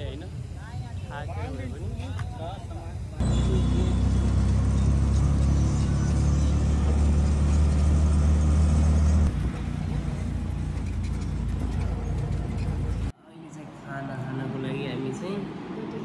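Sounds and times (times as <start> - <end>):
auto-rickshaw ride rumble: 2.7 - 13.2.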